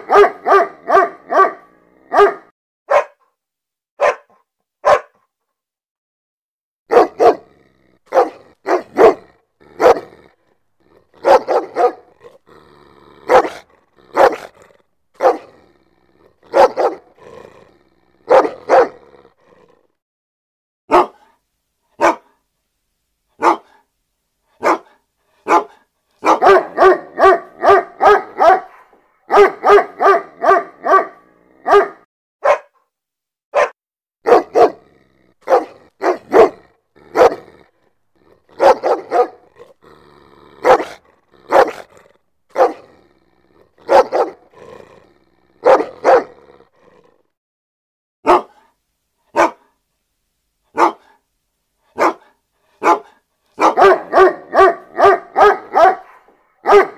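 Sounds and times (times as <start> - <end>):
dog barking: 0.0 - 3.3, 4.0 - 5.3, 6.9 - 10.3, 11.1 - 12.4, 13.2 - 14.6, 15.2 - 15.6, 16.4 - 17.2, 18.2 - 19.0, 20.9 - 21.4, 22.0 - 22.4, 23.4 - 23.8, 24.6 - 32.8, 33.5 - 37.7, 38.5 - 39.8, 40.6 - 43.0, 43.8 - 44.5, 45.6 - 46.4, 48.2 - 49.8, 50.7 - 51.2, 51.9 - 56.9.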